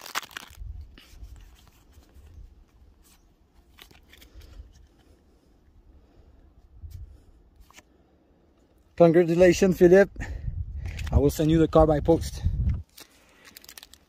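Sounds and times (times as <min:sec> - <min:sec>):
cards sliding and flicking: 0:07.6 - 0:07.9
wind rumble on microphone: 0:10.1 - 0:12.8.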